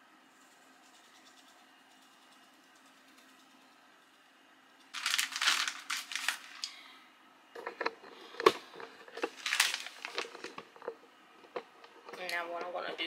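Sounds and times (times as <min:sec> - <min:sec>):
plastic bag crinkling: 0:04.9 - 0:06.8, 0:08.9 - 0:10.9.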